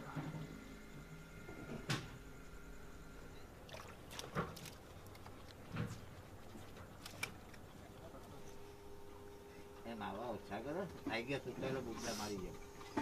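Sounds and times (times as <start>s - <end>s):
faint hum: 0.0s - 13.0s
water splashing and dripping: 3.6s - 5.8s.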